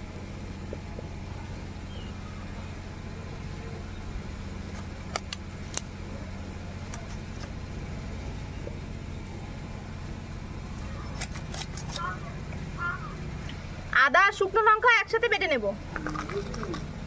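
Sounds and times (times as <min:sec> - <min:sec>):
steady low hum: 0:00.0 - 0:17.0
blade cutting meat and bone: 0:06.8 - 0:07.6, 0:11.0 - 0:12.2.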